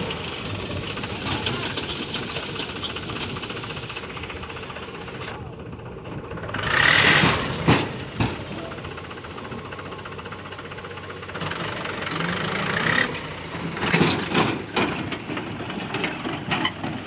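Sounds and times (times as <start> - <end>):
tractor diesel engine running: 0.0 - 17.0
sharp knocks and rattles: 13.6 - 17.0.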